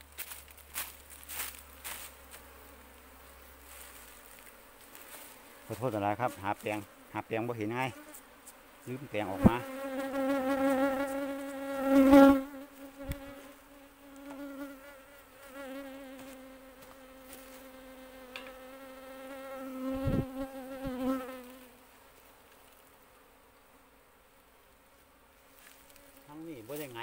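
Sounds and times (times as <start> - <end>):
bees buzzing: 0.0 - 27.0.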